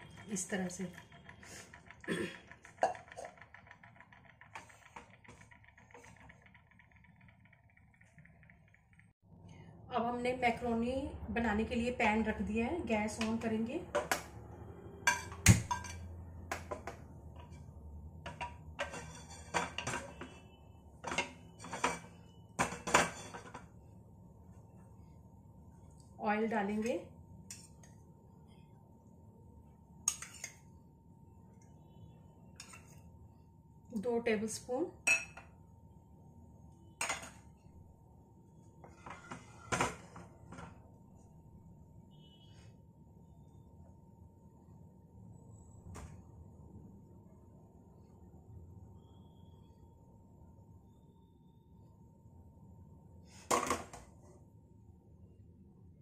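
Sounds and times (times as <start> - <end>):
spatula scraping frying pan: 18.8 - 20.2.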